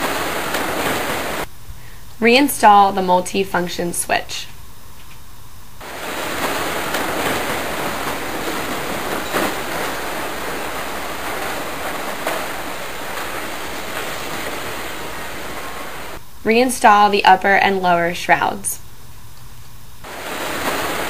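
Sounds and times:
steady rushing noise: 0.0 - 1.5, 5.8 - 16.2, 20.0 - 21.0.

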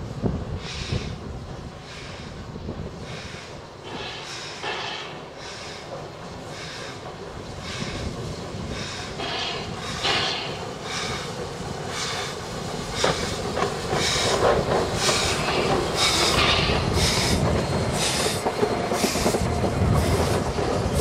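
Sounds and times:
steam locomotive exhaust beats: 0.0 - 21.0
carriage wheels clattering over rails: 13.0 - 21.0.

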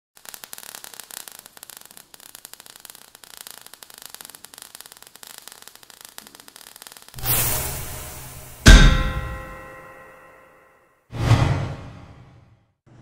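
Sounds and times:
crackling sparks: 0.2 - 10.2.

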